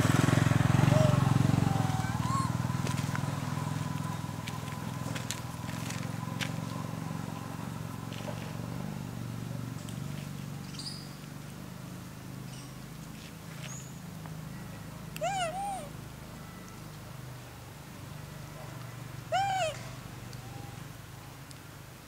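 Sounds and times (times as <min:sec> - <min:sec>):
monkey high-pitched call: 0:00.8 - 0:02.8, 0:15.2 - 0:16.0, 0:19.3 - 0:20.9.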